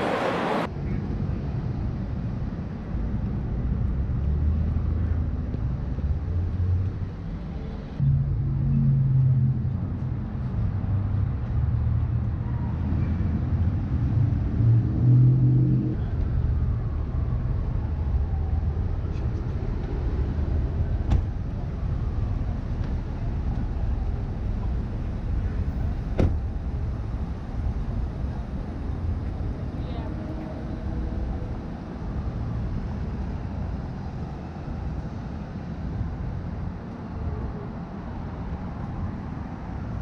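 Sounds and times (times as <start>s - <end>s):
steady traffic rumble: 0.0s - 40.0s.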